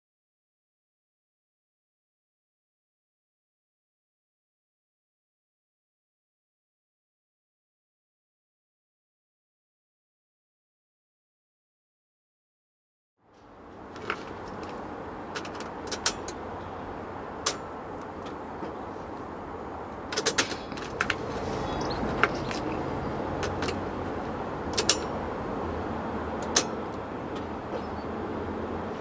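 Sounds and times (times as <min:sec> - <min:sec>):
steady low hum: 0:13.3 - 0:29.0
car keys clicking and jangling: 0:13.9 - 0:16.5, 0:19.9 - 0:25.4, 0:26.4 - 0:27.5.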